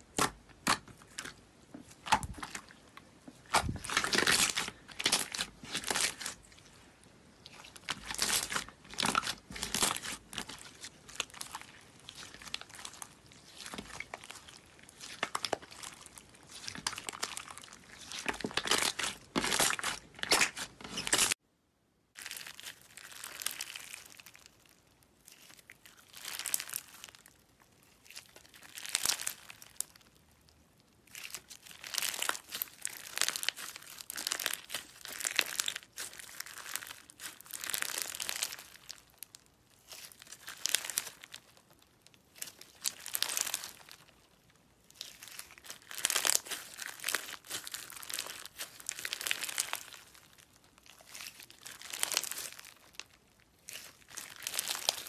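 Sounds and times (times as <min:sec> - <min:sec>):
glitter slime crackling: 0:00.1 - 0:21.4, 0:42.3 - 0:55.0.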